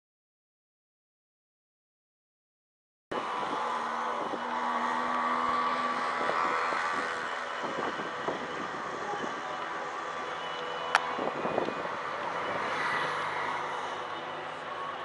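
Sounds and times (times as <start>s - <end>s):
outdoor background noise: 3.1s - 15.0s.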